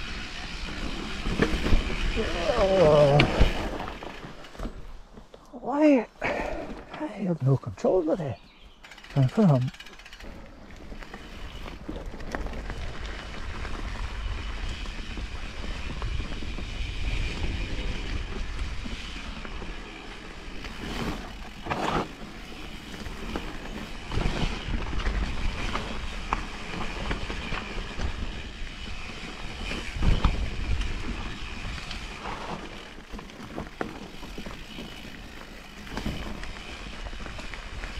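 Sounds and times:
bike tyre rumble on dirt: 0.0 - 5.3, 7.9 - 37.9
bike knocks and rattles: 20.6 - 28.4, 29.2 - 37.6.

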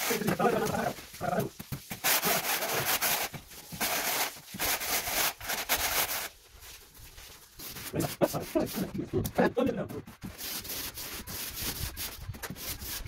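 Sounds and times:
straightedge scraping mortar: 0.0 - 6.3.

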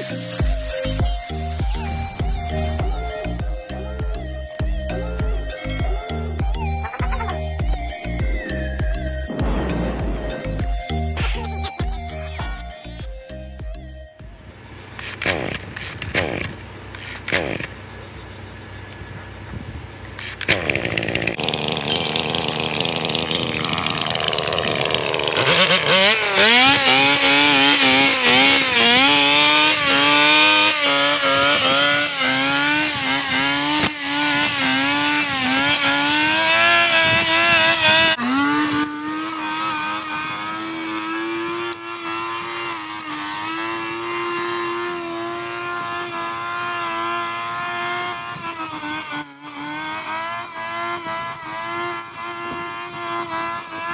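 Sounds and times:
brush cutter engine revving: 14.2 - 53.9.

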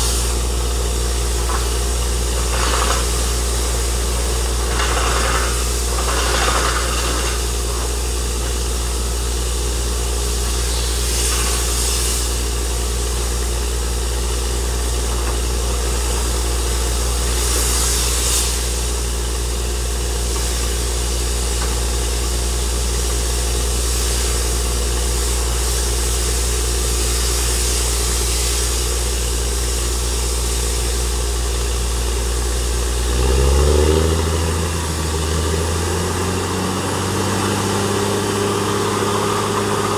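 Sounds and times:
drilling rig engine hum: 0.0 - 39.9
hissing bursts: 1.4 - 7.8.

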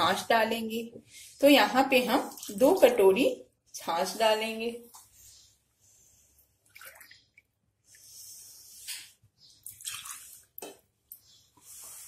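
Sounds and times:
liquid pouring and splashing into bowl: 6.7 - 7.5, 9.6 - 10.8.

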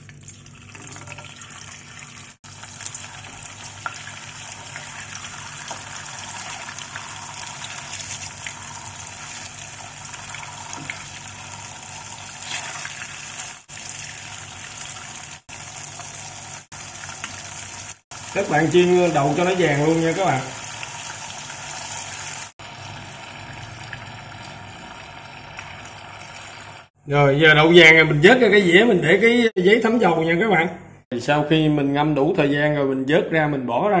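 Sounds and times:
tofu sizzling in hot oil: 2.5 - 26.9.

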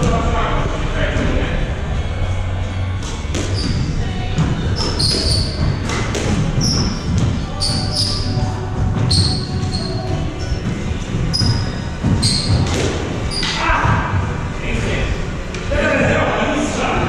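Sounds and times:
sneakers squeaking on wooden floor: 3.1 - 14.4
squash ball smacking: 4.4 - 7.9, 11.4 - 14.1.

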